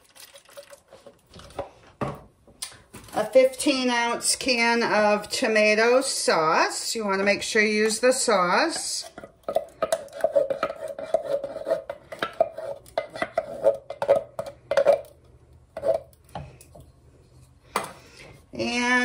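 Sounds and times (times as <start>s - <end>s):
spoon scraping metal can: 8.7s - 15.2s, 15.8s - 16.2s.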